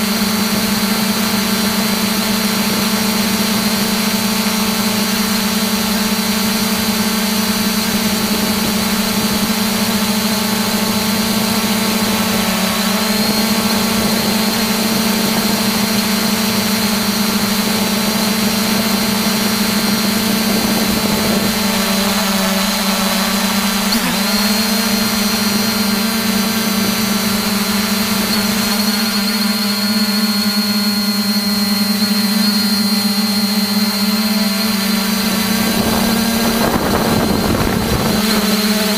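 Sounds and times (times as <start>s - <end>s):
drone motors humming: 0.0s - 38.9s.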